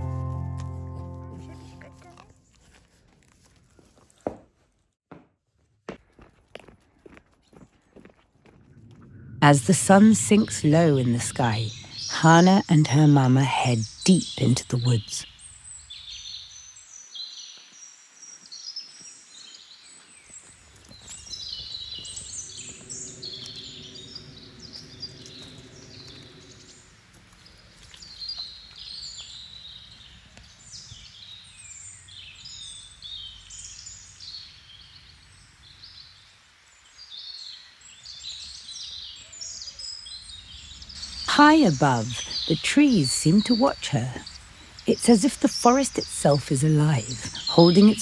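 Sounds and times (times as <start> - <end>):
low outdoor rumble: 8.4 - 12.1
birds singing and chirping: 9.4 - 36.2, 36.9 - 48.0.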